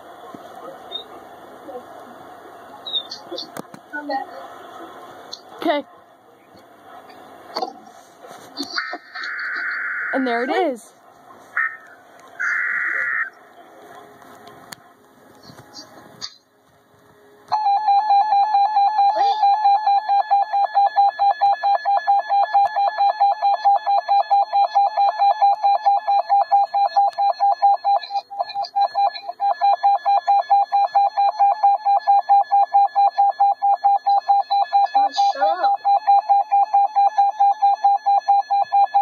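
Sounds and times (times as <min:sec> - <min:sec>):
rapidly pulsing alarm beep: 0:17.6 - 0:39.0.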